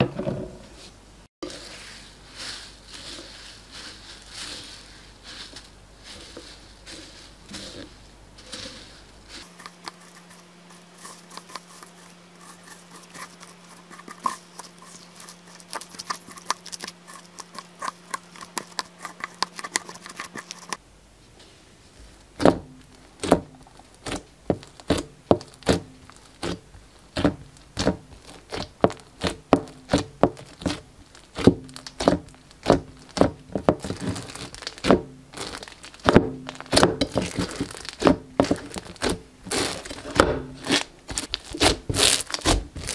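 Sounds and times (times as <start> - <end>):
plastic tip stirring foam beads: 1.4 - 20.8, 22.2 - 42.9
slime popping and crackling: 22.4 - 42.9.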